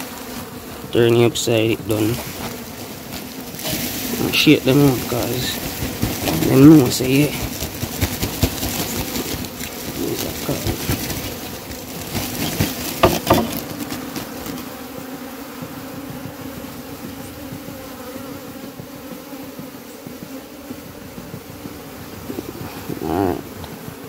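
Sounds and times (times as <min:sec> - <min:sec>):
bees buzzing: 0:00.0 - 0:24.0
cloth bag rustling: 0:01.9 - 0:14.8
sharp knocks on wood: 0:12.4 - 0:14.6.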